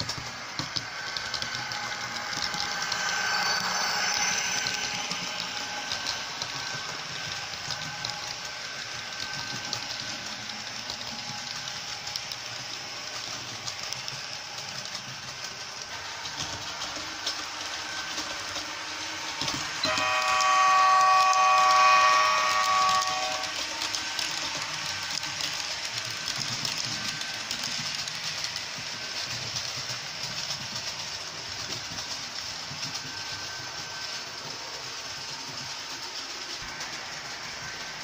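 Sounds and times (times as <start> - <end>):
model train rolling on track: 0.0 - 38.0
locomotive horn chord: 19.8 - 23.6.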